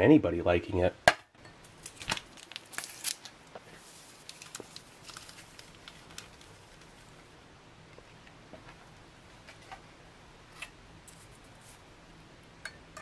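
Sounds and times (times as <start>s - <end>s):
paper packet tearing: 1.8s - 7.1s.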